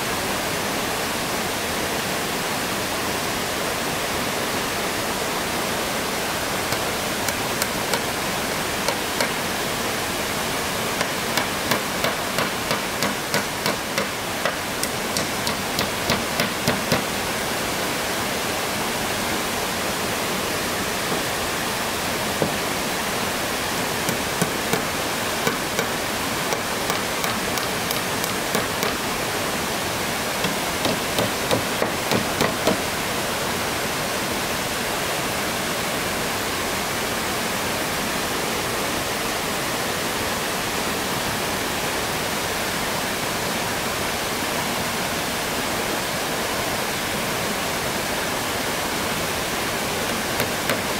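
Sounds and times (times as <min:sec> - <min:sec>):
stream water flowing: 0:00.0 - 0:50.9
hammer driving nails into wood: 0:11.0 - 0:17.1, 0:24.1 - 0:29.1, 0:30.4 - 0:32.8, 0:50.1 - 0:50.9.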